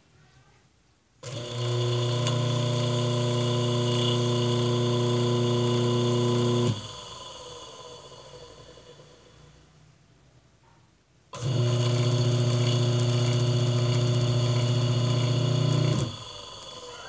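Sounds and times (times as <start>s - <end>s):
electric motor humming: 1.2s - 7.0s, 11.4s - 16.4s.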